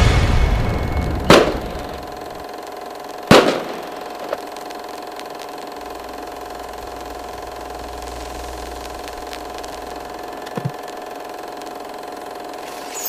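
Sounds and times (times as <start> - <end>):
low rumble: 0.0 - 2.4, 5.9 - 10.4
sharp hit: 0.0 - 2.6
humming drone of held tones: 0.0 - 13.0.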